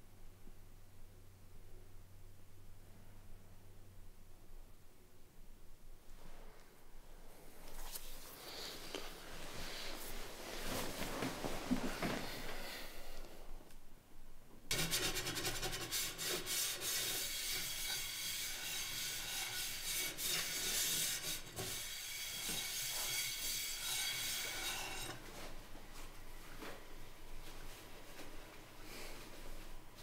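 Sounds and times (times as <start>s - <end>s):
rough rasping scrape: 14.7s - 25.2s.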